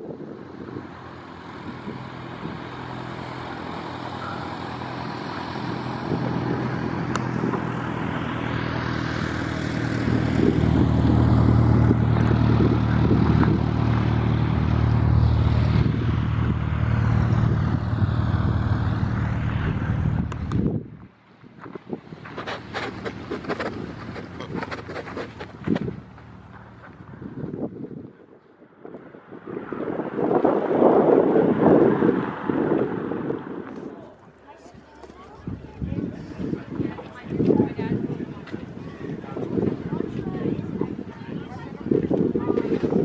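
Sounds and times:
aircraft engine droning: 0.0 - 21.0.

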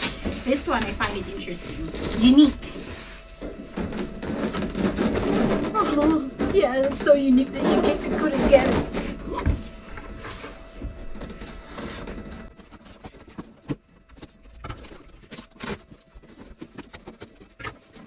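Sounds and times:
cardboard rustling: 0.0 - 18.0
scissors cutting cardboard: 11.4 - 18.0.

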